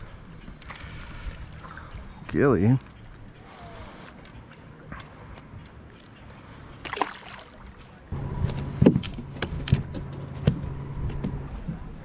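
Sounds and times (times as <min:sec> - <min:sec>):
water lapping softly: 0:00.0 - 0:08.1.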